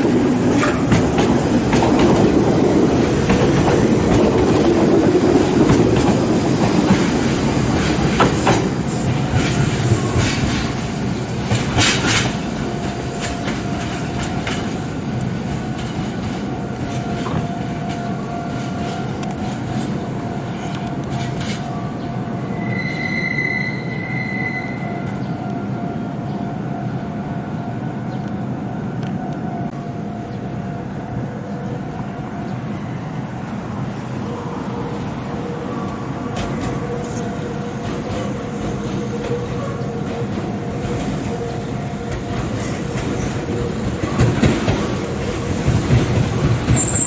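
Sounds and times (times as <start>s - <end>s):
wheels clacking over rail joints: 0.0s - 20.1s, 36.3s - 47.0s
electric train wheel rumble: 0.0s - 47.0s.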